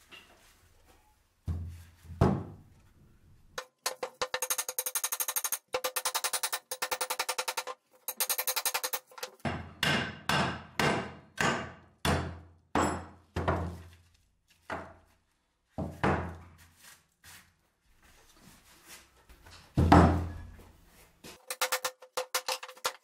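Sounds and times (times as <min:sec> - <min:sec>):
hammer striking workpiece: 0:03.6 - 0:13.6, 0:21.4 - 0:23.0.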